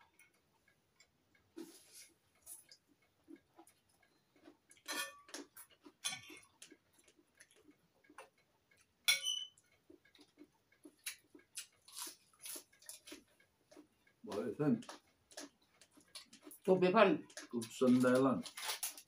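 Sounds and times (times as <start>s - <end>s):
soft chewing: 0.0s - 19.0s
cutlery scraping on china plate: 4.8s - 5.3s, 6.0s - 6.5s, 9.1s - 9.5s.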